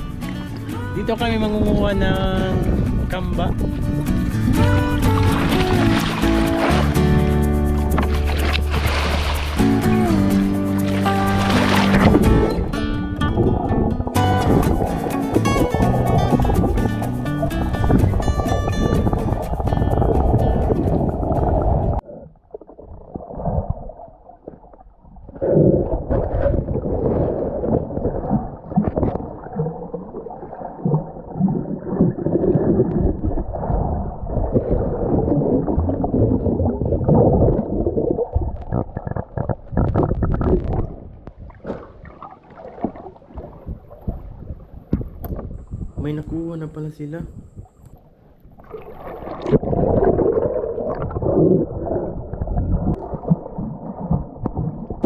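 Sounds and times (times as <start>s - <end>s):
background music: 0.0s - 21.0s
muffled underwater gurgling: 0.8s - 7.1s, 7.7s - 48.0s, 48.6s - 55.0s
short knocks underwater: 3.4s - 7.1s, 7.8s - 22.0s, 22.6s - 45.9s, 47.9s - 55.0s.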